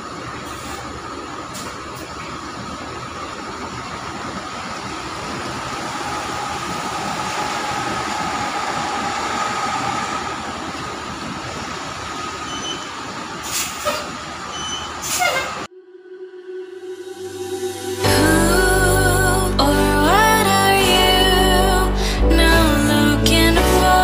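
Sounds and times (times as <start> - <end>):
tyres rumbling: 0.0 - 15.7
bus engine whining: 0.0 - 24.0
air brake hiss: 13.4 - 14.1.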